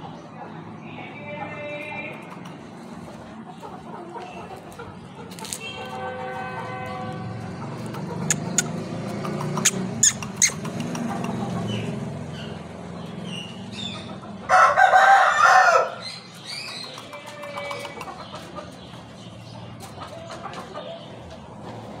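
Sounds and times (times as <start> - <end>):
sharp clicks: 8.3 - 11.4
rooster crowing: 14.5 - 16.1.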